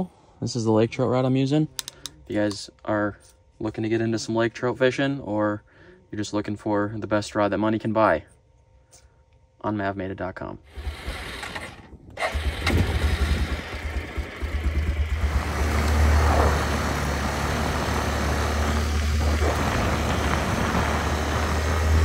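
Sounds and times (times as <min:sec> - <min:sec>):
atv engine running: 0:10.7 - 0:22.0.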